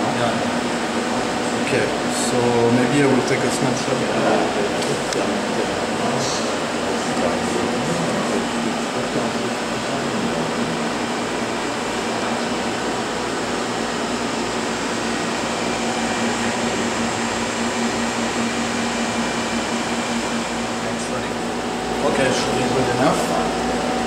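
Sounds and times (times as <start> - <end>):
laboratory machinery hum and hiss: 0.0 - 24.0.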